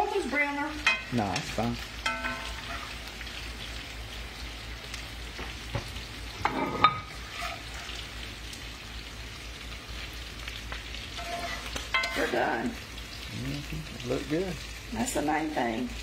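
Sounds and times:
potatoes sizzling in oil: 0.0 - 16.0
metal spatula scraping pan: 2.0 - 3.0, 6.4 - 8.0, 11.1 - 12.6.

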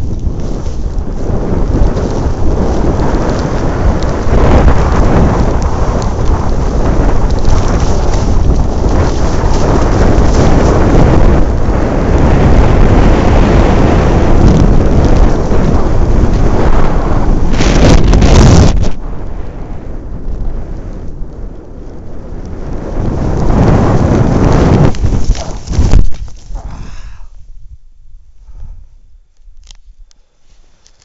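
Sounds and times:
wind buffeting microphone: 0.0 - 30.2.

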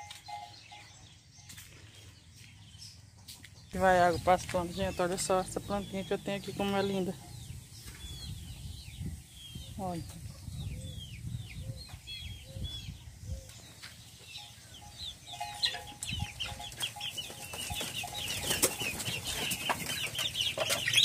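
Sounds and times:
chicks chirping: 0.0 - 21.0
chickens clucking: 3.0 - 8.7, 10.0 - 21.0.

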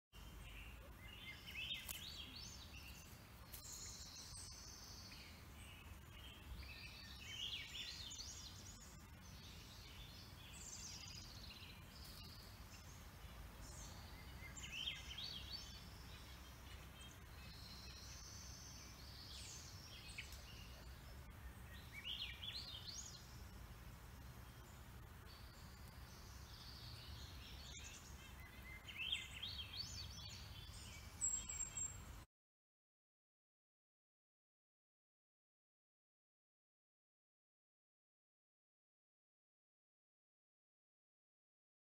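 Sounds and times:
small songbirds singing faintly: 0.1 - 32.3.

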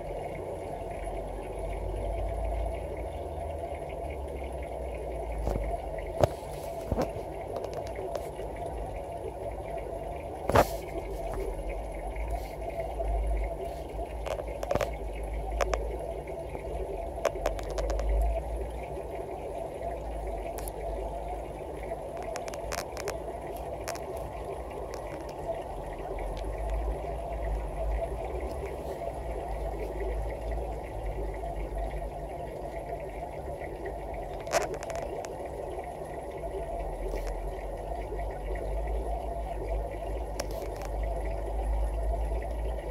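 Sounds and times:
aquarium water bubbling: 0.0 - 42.9
faint ticks: 4.4 - 19.0, 19.9 - 21.0, 21.7 - 30.6, 33.8 - 42.7.

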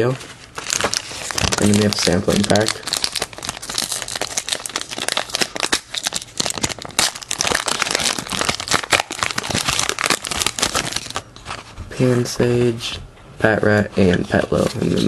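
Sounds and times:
wrapper crinkling: 0.1 - 11.6.

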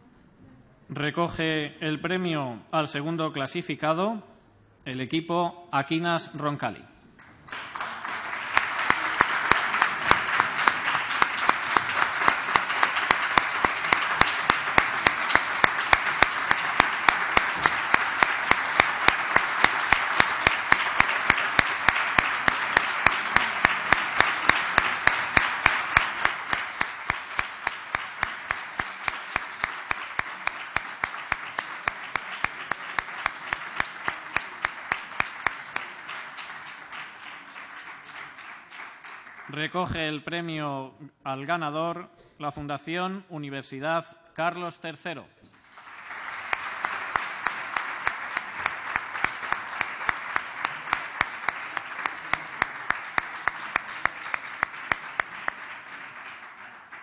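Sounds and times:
audience applauding: 7.2 - 39.8, 45.5 - 57.0.

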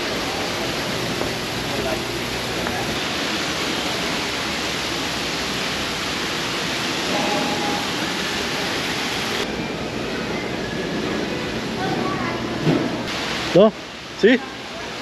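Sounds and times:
water rushing down rocks: 0.0 - 9.5, 13.1 - 15.0.

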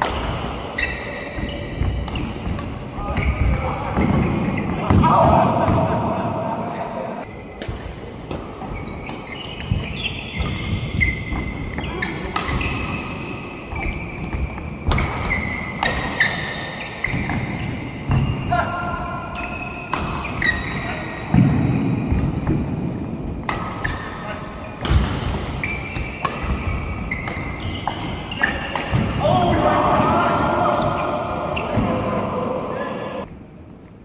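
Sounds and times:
shoes squeaking on court: 0.7 - 4.8, 8.6 - 18.4, 19.0 - 22.5, 23.5 - 29.0, 30.6 - 32.0
rackets striking shuttlecock: 24.8 - 29.2.

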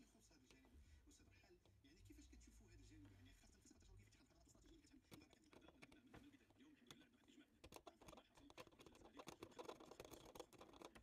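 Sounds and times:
metal tweezers clicking and scratching: 4.9 - 6.1, 6.8 - 11.0.

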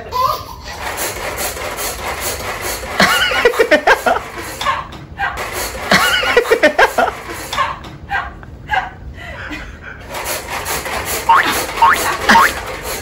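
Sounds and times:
person chuckling: 5.9 - 7.4.

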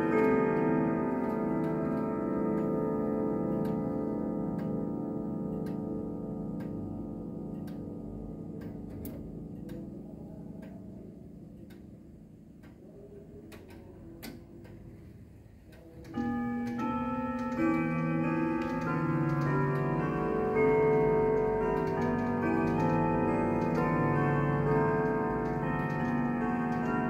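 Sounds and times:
clock chime ringing tune: 0.0 - 8.7, 16.1 - 27.0
grandfather clock ticking: 0.0 - 27.0.

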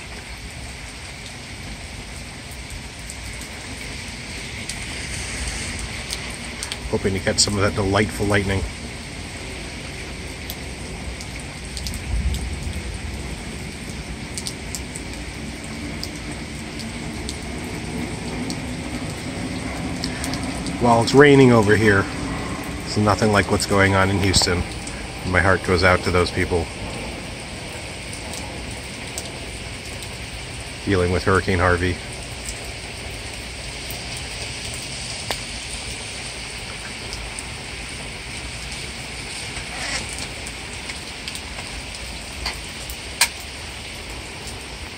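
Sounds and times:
drips and splashes: 0.0 - 44.9
heavy rain: 0.0 - 44.9
low rumble: 3.1 - 11.1, 15.4 - 29.5.

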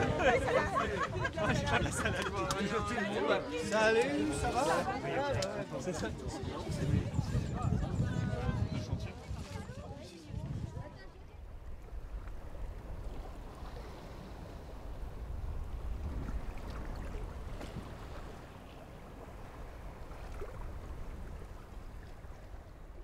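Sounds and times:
water lapping: 0.0 - 23.0.

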